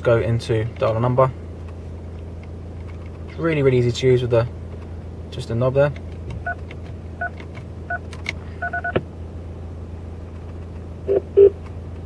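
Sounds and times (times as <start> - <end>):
steady low hum: 0.0 - 12.0
car kit short beeps: 11.1 - 11.6.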